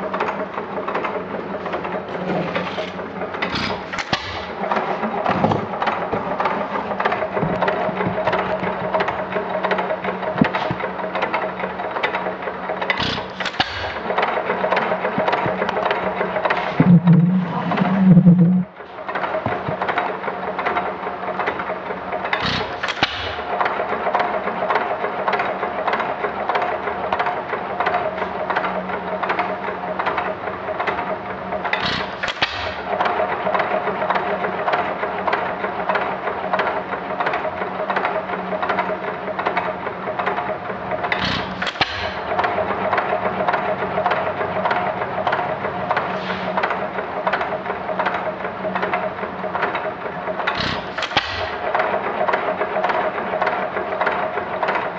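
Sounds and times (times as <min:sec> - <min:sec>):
hit-and-miss engine clatter: 0:00.0 - 0:54.9
engine firing strokes: 0:12.8 - 0:20.1.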